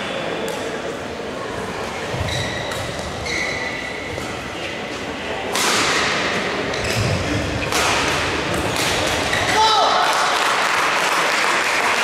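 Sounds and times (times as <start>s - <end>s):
racket hitting shuttlecock: 5.5s - 9.6s.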